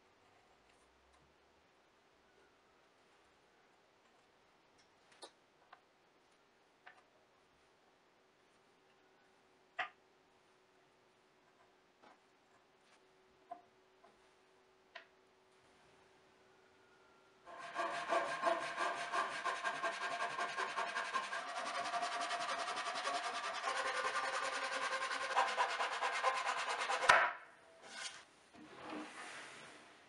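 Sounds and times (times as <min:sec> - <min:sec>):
pull saw rasping through wood: 0:17.5 - 0:27.1.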